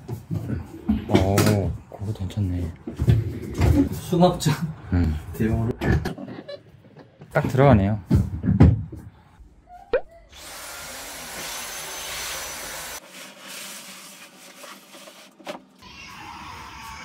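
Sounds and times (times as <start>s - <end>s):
toys knocking and rustling: 6.9s - 9.1s
vacuum cleaner running: 10.4s - 13.0s.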